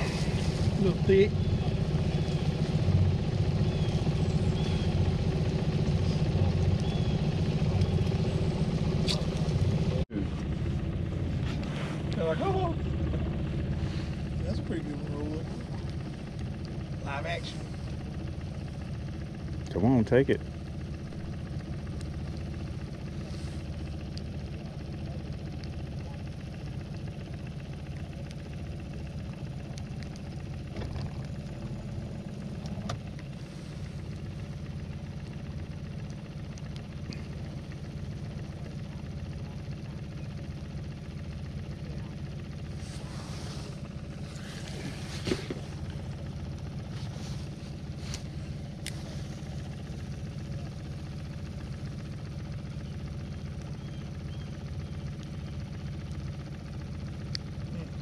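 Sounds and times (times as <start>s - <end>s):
boat motor idling: 0.0s - 58.0s
rustling noise: 11.3s - 12.1s, 42.8s - 45.9s, 46.9s - 49.4s.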